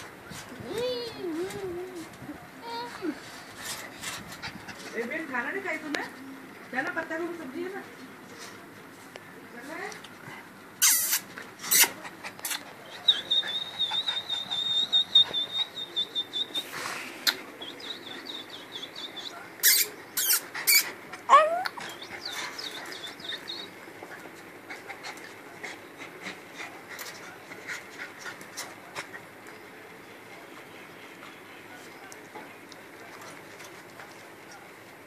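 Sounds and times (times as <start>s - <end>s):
dog panting: 11.9s - 16.9s, 20.5s - 29.3s.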